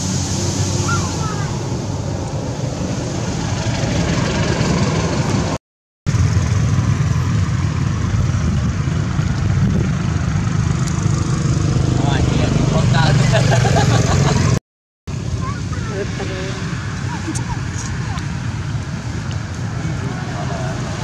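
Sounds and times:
hiss: 0:00.0 - 0:01.8
engine hum: 0:00.0 - 0:21.0.

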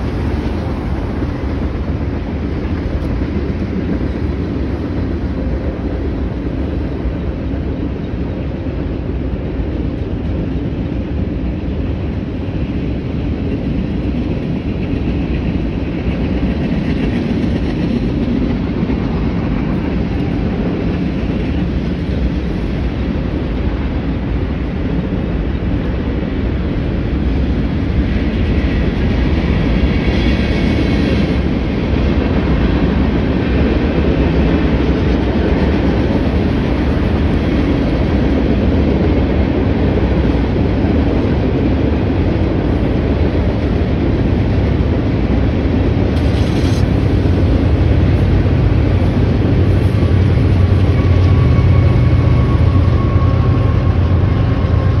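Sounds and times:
diesel locomotive drone: 0:00.0 - 0:55.0
train wheels rumbling and clacking: 0:00.0 - 0:55.0
high wheel squeal: 0:49.8 - 0:55.0.

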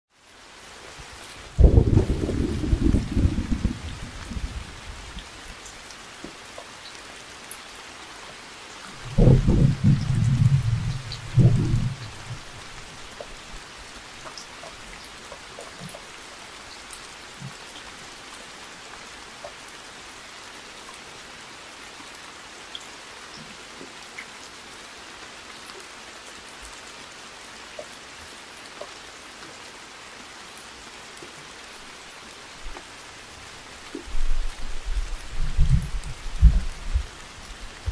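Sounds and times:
steady rain hiss: 0:00.1 - 0:37.9
low rumble of thunder: 0:01.5 - 0:05.2, 0:09.0 - 0:13.0, 0:34.2 - 0:37.9
raindrop ticks: 0:01.6 - 0:18.2, 0:22.7 - 0:24.6, 0:30.5 - 0:37.9.

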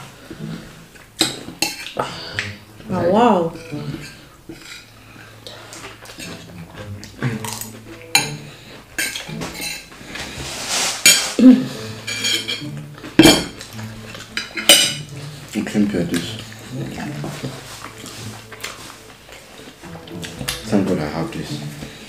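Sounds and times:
cutlery clinking on a plate: 0:01.2 - 0:02.6, 0:03.6 - 0:04.9, 0:07.3 - 0:09.9, 0:12.0 - 0:15.1.

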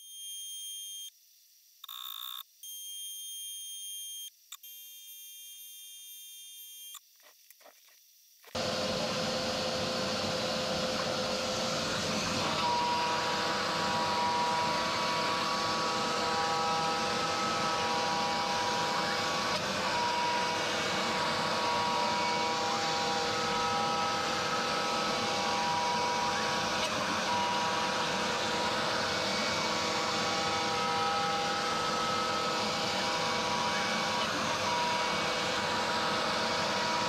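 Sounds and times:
router spindle cutting plywood: 0:08.5 - 0:37.0
stepper motor whine: 0:08.5 - 0:37.0.

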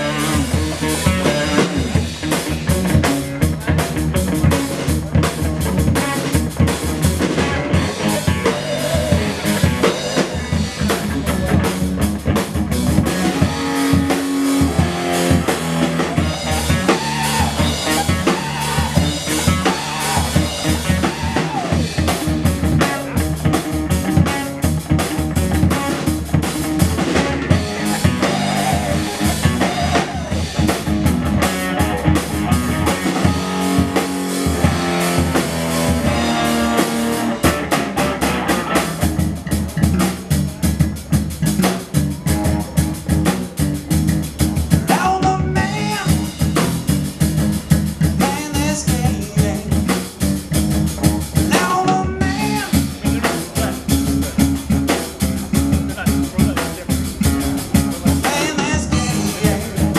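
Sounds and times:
drums and cymbals: 0:00.0 - 0:59.9
electric bass: 0:00.0 - 0:59.9
electric guitar through amplifier: 0:00.0 - 0:59.9.

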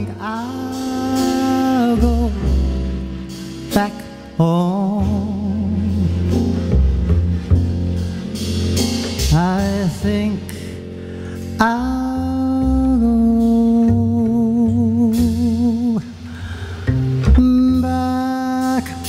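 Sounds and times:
plucked double bass: 0:00.0 - 0:19.0
man singing wordless runs: 0:09.3 - 0:10.5.

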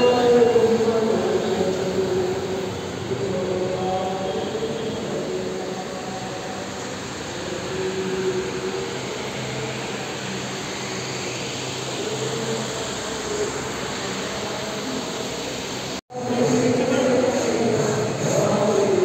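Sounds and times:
electric fans rushing air: 0:00.0 - 0:19.0.

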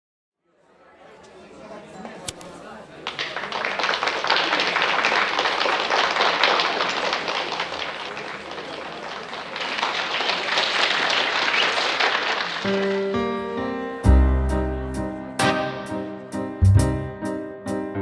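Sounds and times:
audience applauding: 0:03.0 - 0:13.3.

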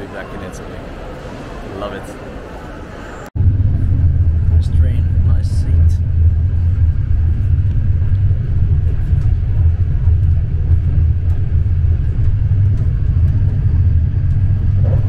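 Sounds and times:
train rumbling: 0:00.7 - 0:15.0.

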